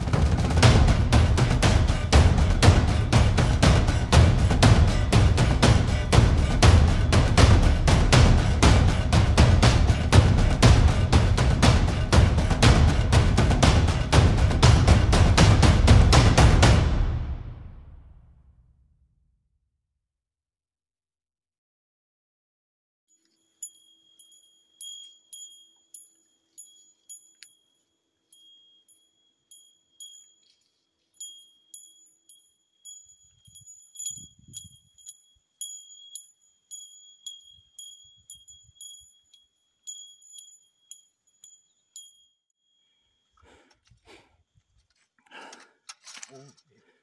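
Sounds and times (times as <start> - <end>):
small bell jingling: 23.1 - 43.4
rustling: 23.2 - 41.7.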